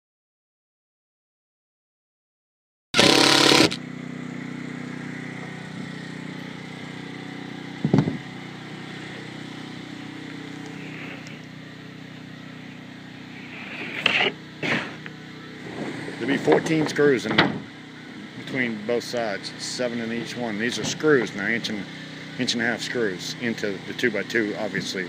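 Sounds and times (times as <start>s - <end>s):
cordless drill driving screw: 3.0s - 3.8s
steady engine hum: 3.0s - 25.0s.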